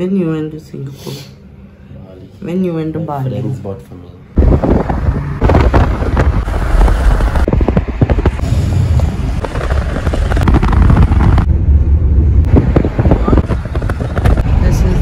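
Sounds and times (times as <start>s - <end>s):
car road noise: 3.2s - 15.0s
wind buffeting microphone: 4.4s - 15.0s.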